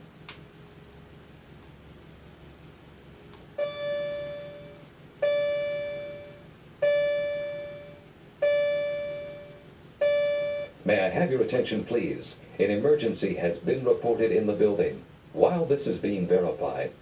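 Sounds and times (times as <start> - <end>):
fire alarm chime-like alert tone: 3.6 - 10.8.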